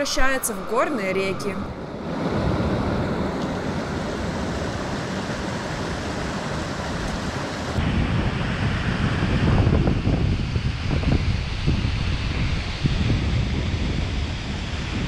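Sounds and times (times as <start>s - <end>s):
wind buffeting microphone: 0.0s - 15.0s
rushing meltwater: 1.9s - 8.0s.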